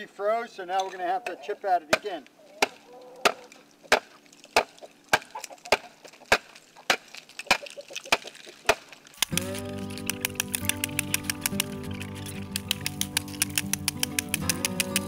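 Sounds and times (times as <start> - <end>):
music: 9.2 - 15.0.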